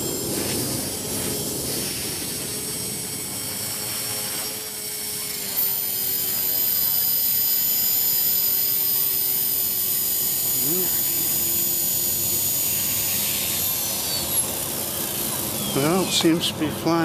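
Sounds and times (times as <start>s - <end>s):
rc helicopter rotor whine: 0.0s - 17.0s.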